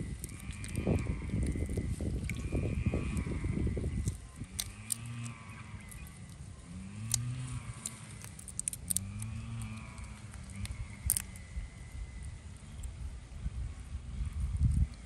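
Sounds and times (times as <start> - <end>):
small water splashes: 0.0 - 11.4
low rumble: 0.0 - 15.0
shrimp shells clicking: 4.0 - 5.2, 7.0 - 11.4.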